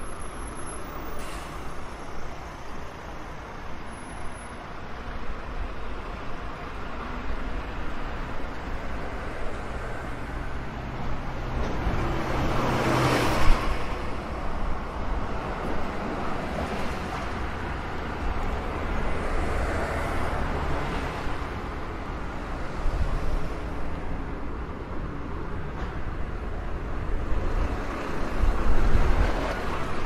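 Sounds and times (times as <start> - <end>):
rumble of engines and road noise: 0.0 - 30.0
bus engine passing: 6.3 - 30.0.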